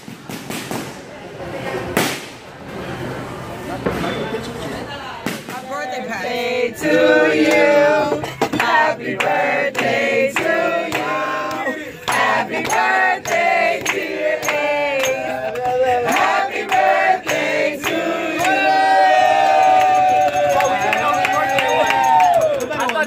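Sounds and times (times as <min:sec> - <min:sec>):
group singing in rhythm: 0:06.0 - 0:20.2
handclaps: 0:08.6 - 0:18.6, 0:19.6 - 0:23.0.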